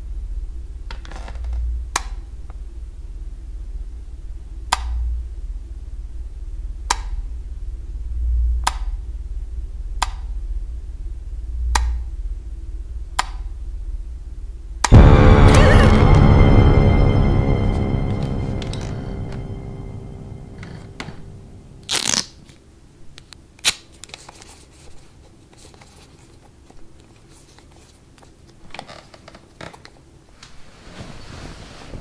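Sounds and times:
horror music sting: 14.9 - 22.2
low rumbling drone: 14.9 - 22.2.

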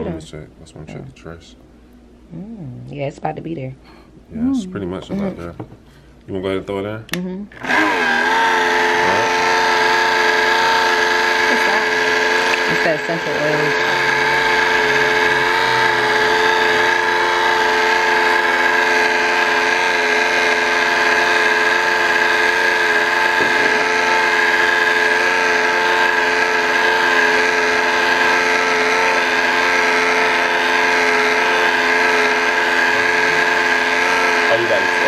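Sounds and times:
stick blender humming: 7.5 - 35.0.

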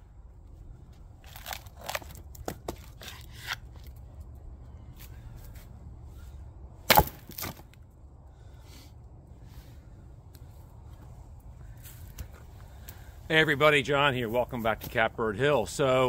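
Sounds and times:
axe splitting wood crack: 1.2 - 4.0, 6.8 - 7.8.

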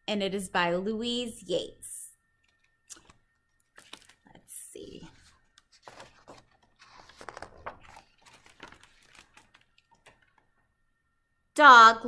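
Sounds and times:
book pages rustling: 2.4 - 10.6.

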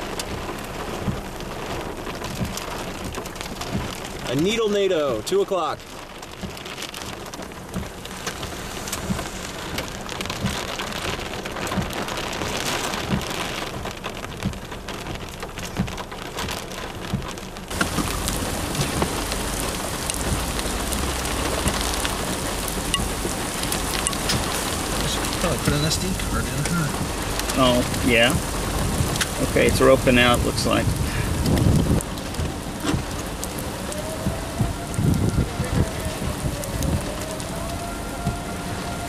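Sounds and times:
rain on a car windshield: 0.0 - 39.0
low rumble: 7.4 - 12.2, 17.0 - 39.0.

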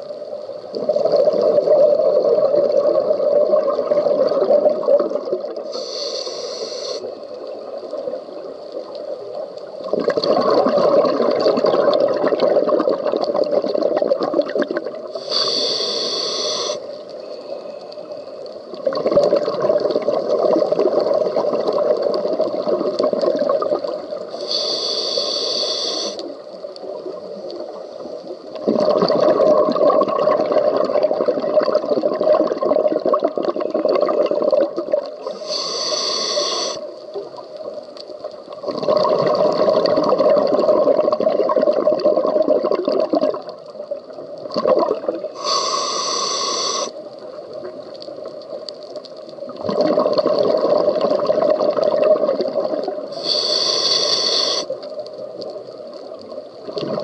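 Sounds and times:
exhaled bubbles rushing: 0.7 - 5.7, 9.8 - 15.2, 18.7 - 24.3, 28.6 - 35.2, 38.6 - 43.6, 44.4 - 45.3, 49.5 - 53.2, 56.6 - 57.0
regulator air hiss: 5.7 - 7.5, 15.1 - 18.4, 24.3 - 26.5, 35.2 - 37.2, 45.3 - 47.0, 53.1 - 55.0.

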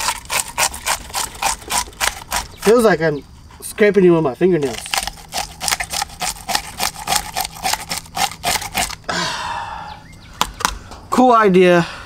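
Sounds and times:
fish scaler scraping scales: 0.0 - 3.0, 4.6 - 9.0.

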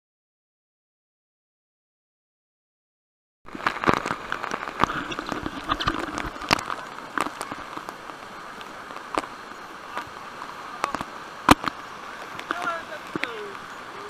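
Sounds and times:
waterfall rushing: 3.5 - 14.0.

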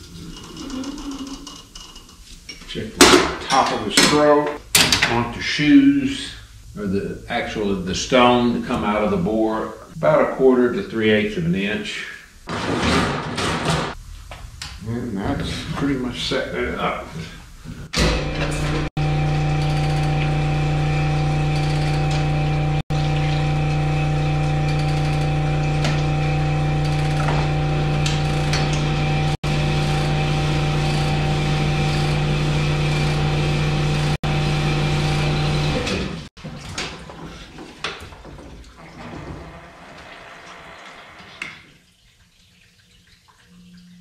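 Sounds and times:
honing machine deep hum: 18.2 - 36.2.

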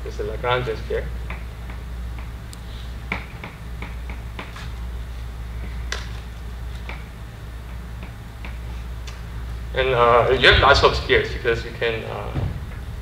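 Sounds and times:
steady low hum: 0.0 - 13.0
chalk tapping on blackboard: 3.1 - 4.8.

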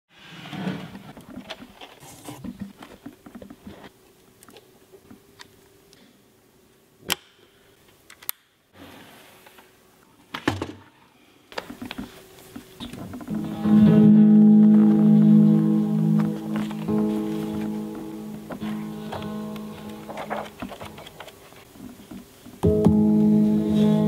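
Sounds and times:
sustained amplified notes ringing: 13.3 - 20.2.

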